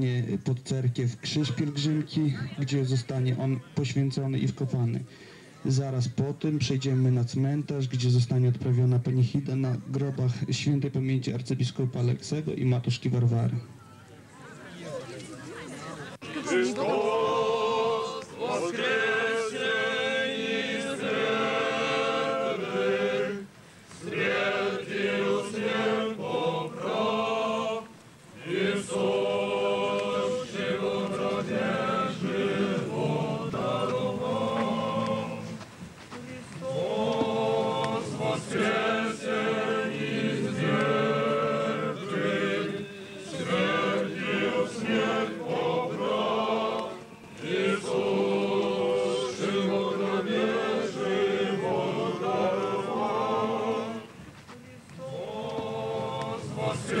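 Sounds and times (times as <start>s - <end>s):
crowd singing a church chant: 16.2s - 57.0s.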